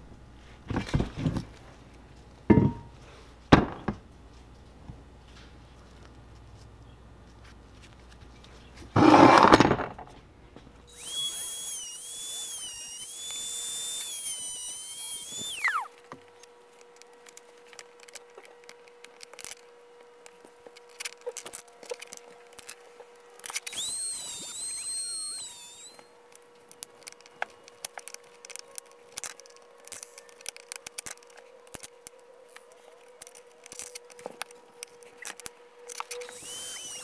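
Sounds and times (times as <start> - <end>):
rotary tool whining: 10.9 - 26.2, 26.8 - 37.0.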